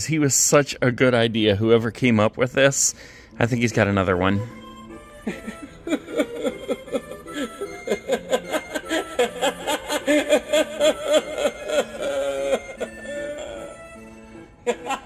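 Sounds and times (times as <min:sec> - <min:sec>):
background music: 0:00.0 - 0:15.0
recorded laugh through speaker: 0:05.3 - 0:13.8, 0:14.7 - 0:15.0.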